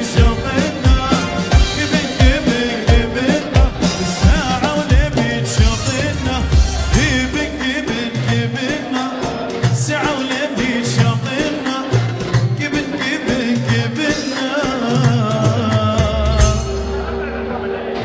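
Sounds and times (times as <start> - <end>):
hand drum dance beat: 0.0 - 16.9.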